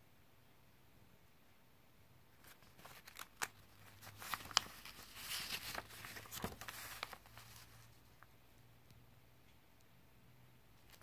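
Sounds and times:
paper pages rustling: 0:02.4 - 0:08.3, 0:10.8 - 0:11.0.

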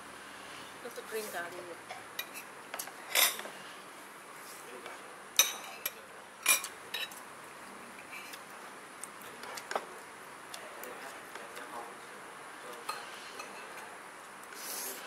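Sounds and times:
cutlery clinking on plates: 0:02.2 - 0:03.5, 0:05.4 - 0:07.2, 0:12.8 - 0:13.9.

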